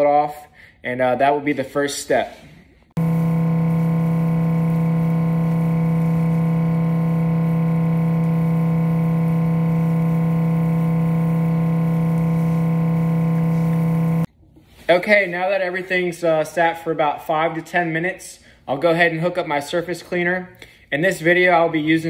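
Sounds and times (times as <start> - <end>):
steady low droning hum: 3.0 - 14.3.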